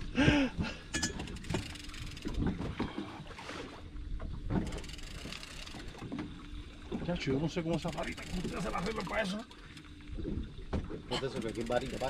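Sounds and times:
faint steady hum: 0.0s - 12.0s
water sloshing against boat hull: 0.0s - 12.0s
fishing reel ticking: 1.0s - 2.5s, 4.6s - 6.0s, 7.6s - 9.9s, 11.2s - 12.0s.

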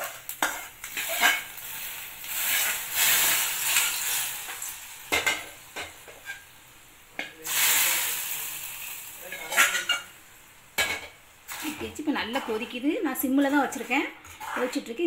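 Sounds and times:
metal scraping and clinking on pan: 0.0s - 1.6s, 9.2s - 10.1s, 10.8s - 15.0s
hot oil sizzling in liquid: 0.0s - 15.0s.

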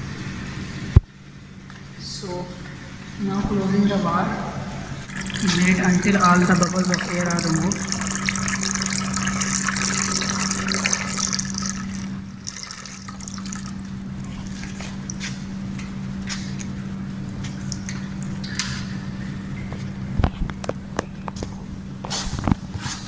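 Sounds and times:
steady low hum: 0.0s - 23.0s
water splashing into plastic jug: 5.0s - 15.4s
faint water trickle: 5.0s - 15.5s, 17.5s - 18.8s.

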